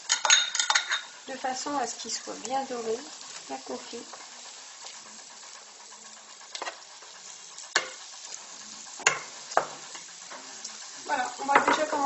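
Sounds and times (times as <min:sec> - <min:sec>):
onions sizzling in frying pan: 0:00.0 - 0:12.0
metal skimmer knocking on pan: 0:11.4 - 0:11.9.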